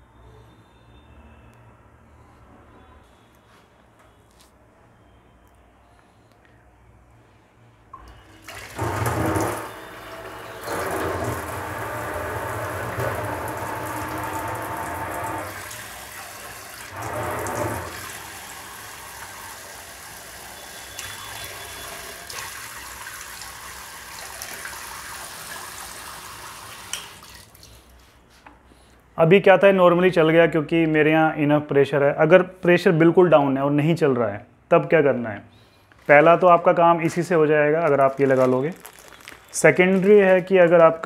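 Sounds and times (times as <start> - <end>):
water running from tap: 8.4 - 27.7.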